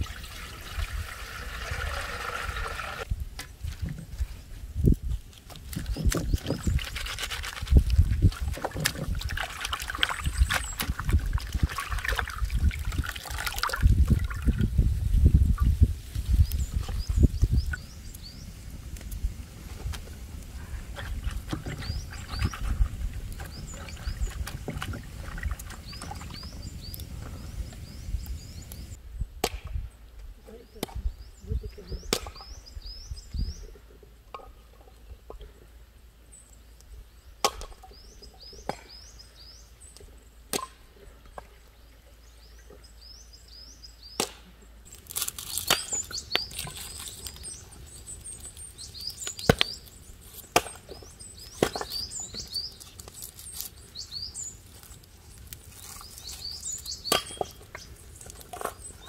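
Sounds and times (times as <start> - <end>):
small birds chirping: 5.7 - 13.8, 15.5 - 19.3, 20.4 - 29.0, 29.9 - 45.0, 45.6 - 59.0
sharp cracks and knocks: 29.4 - 29.8, 37.4 - 37.8, 38.6 - 39.0, 40.5 - 40.8, 44.1 - 47.5, 48.4 - 53.7, 54.8 - 59.0.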